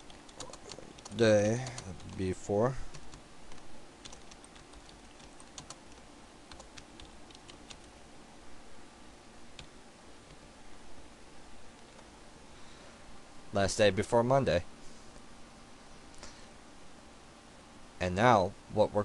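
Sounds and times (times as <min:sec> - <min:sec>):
quiet keyboard typing: 0:00.0 - 0:08.0, 0:09.5 - 0:10.4.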